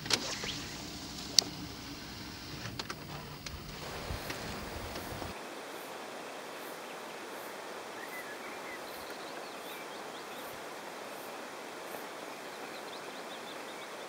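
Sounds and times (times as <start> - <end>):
water noise: 0.0 - 13.0
wind: 0.0 - 14.0
faint bird chirps: 7.9 - 10.6.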